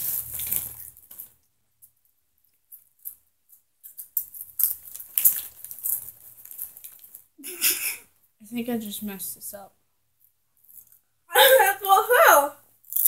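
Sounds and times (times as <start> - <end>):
rustling handling noise: 0.0 - 7.4.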